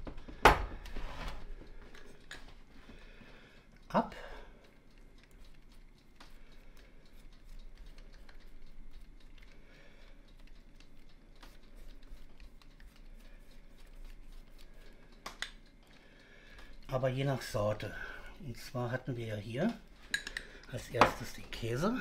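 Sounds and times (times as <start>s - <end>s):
sharp clicks: 3.2s - 17.9s
pastry brush dabbing: 4.3s - 15.8s.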